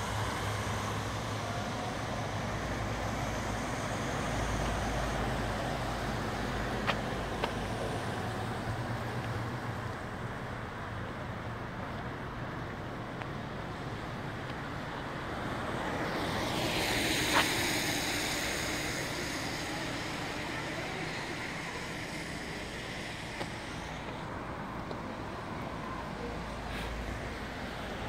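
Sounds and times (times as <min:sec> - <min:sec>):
street traffic noise: 0:00.0 - 0:28.0
car passing: 0:13.7 - 0:28.0.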